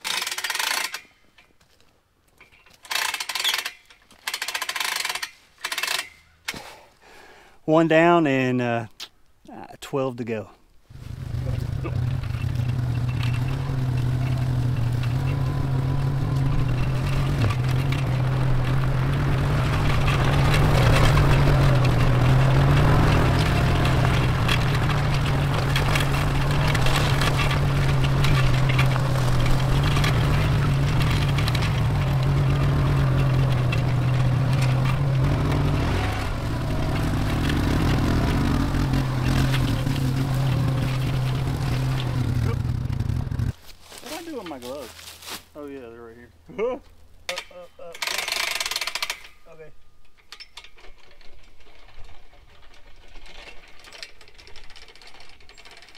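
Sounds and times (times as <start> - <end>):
atv engine running: 10.9 - 45.1.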